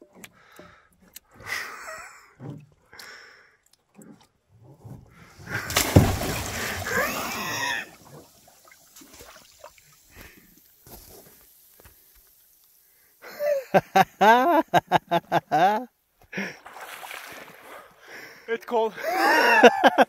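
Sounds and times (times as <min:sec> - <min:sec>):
water churning and gurgling: 0:00.0 - 0:12.1, 0:16.4 - 0:18.4
water gently lapping: 0:00.0 - 0:13.1, 0:16.3 - 0:18.4
person splashing into water: 0:05.4 - 0:10.4, 0:16.6 - 0:17.8.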